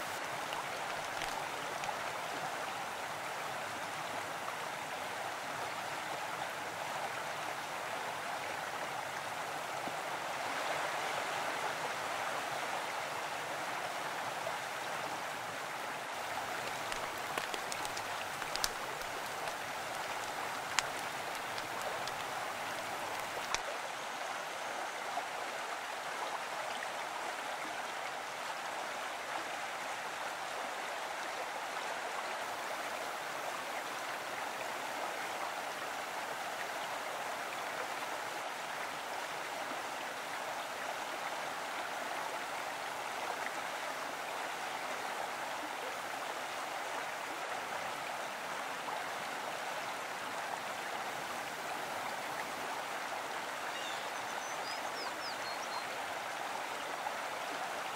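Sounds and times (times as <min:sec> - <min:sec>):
stream water rushing: 0:00.0 - 0:57.9.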